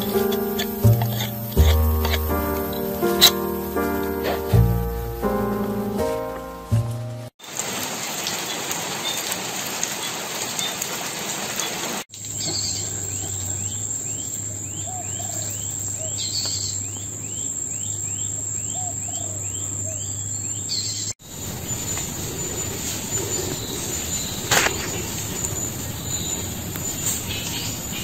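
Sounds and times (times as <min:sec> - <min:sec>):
bird chirping: 0:00.0 - 0:06.1, 0:12.3 - 0:28.0
rain on puddle and rocks: 0:07.4 - 0:12.6, 0:21.3 - 0:28.0
lower bird calls: 0:12.4 - 0:28.0
insect drone: 0:21.2 - 0:28.0.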